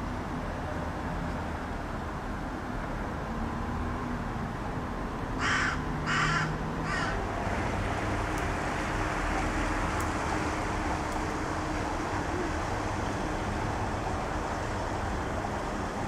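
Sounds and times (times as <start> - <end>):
crow cawing: 5.4 - 7.2.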